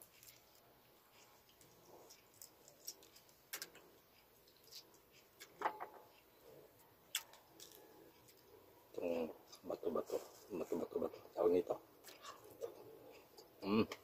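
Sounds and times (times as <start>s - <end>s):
mouth sound: 13.6s - 14.0s.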